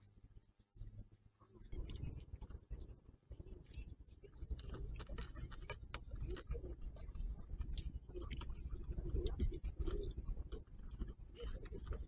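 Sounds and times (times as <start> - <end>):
fat crackling and popping on grill: 0.0 - 12.0.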